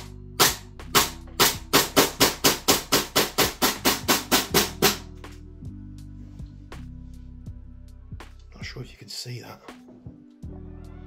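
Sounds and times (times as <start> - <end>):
airsoft rifle shots: 0.4 - 5.0.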